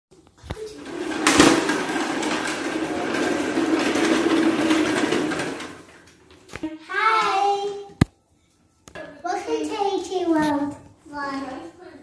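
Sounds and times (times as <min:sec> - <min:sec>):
vacuum cleaner running: 0:00.7 - 0:05.9.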